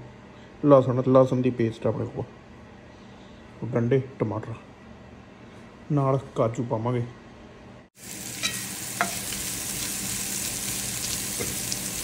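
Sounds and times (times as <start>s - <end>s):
food sizzling in hot oil: 8.0s - 12.0s.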